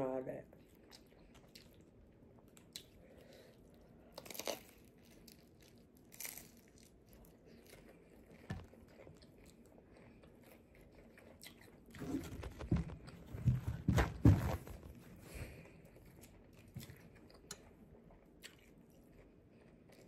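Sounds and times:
crunching of fried food: 0.6 - 13.3.

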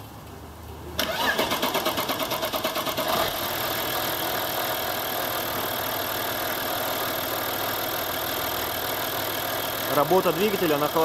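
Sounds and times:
diesel engine idling: 2.3 - 11.0.

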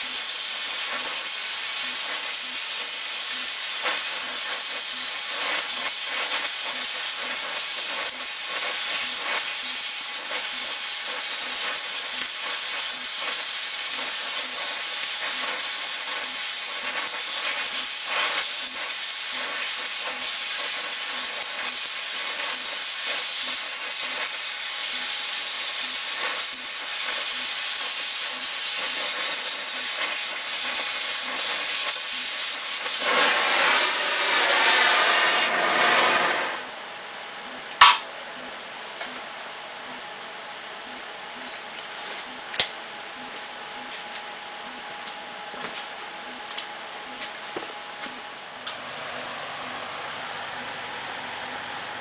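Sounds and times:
sparks crackling: 0.0 - 36.5
cutting torch hissing: 0.0 - 36.7.

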